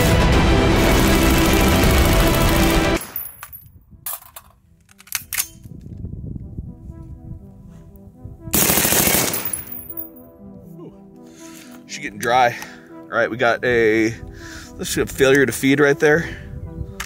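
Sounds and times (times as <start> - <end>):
loud background music: 0.0 - 3.0, 8.0 - 13.1
automatic gunfire burst: 0.9 - 3.2, 8.6 - 9.7.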